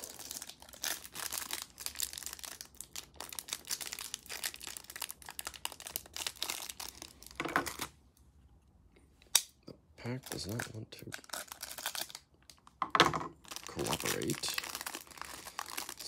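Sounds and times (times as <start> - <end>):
plastic wrapper crinkling: 0.0 - 8.0, 10.2 - 12.8, 13.4 - 16.0.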